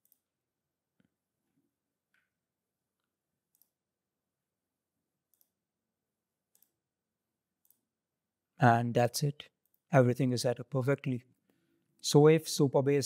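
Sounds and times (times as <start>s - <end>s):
faint computer mouse clicks: 3.5s - 3.8s, 5.3s - 5.6s, 6.5s - 6.8s.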